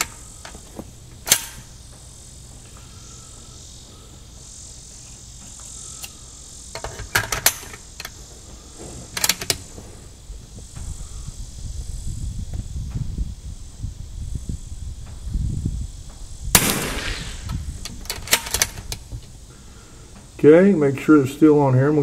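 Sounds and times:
rifle bolt metal clicks: 1.2 - 1.6.

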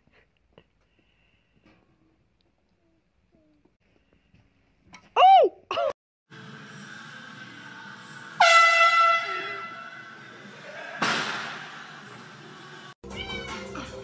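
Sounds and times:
air horn note: 8.4 - 10.2.

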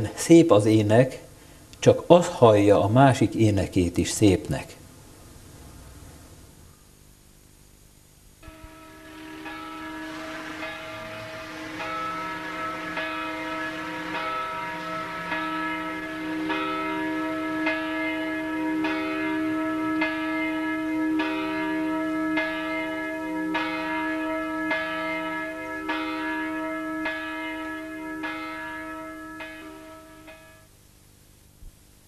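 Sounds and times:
bell tolling: 8.4 - 30.7.

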